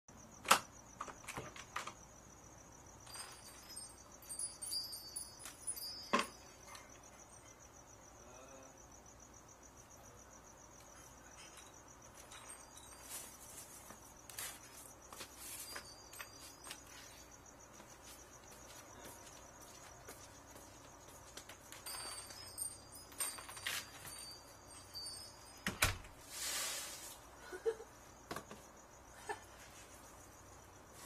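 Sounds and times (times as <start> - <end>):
crickets chirping: 0.1 - 31.0.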